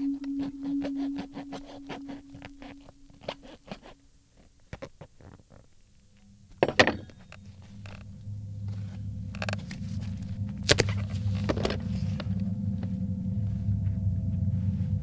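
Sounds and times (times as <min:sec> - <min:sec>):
plastic tearing: 0:10.6 - 0:11.9.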